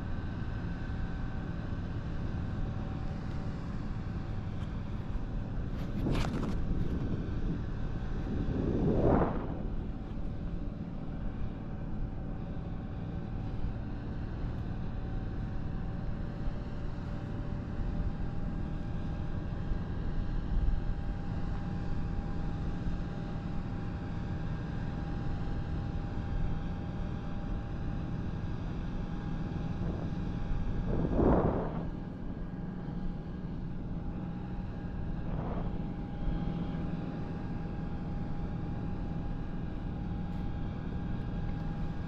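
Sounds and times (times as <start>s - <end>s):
wind rushing over microphone: 5.2s - 11.4s, 28.8s - 38.1s
thin high whine: 29.6s - 33.1s.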